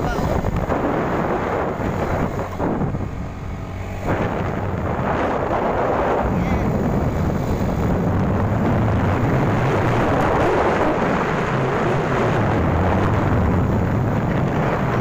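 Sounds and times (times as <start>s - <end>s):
wind rumble on microphone: 0.0s - 15.0s
scooter engine running: 1.0s - 10.8s.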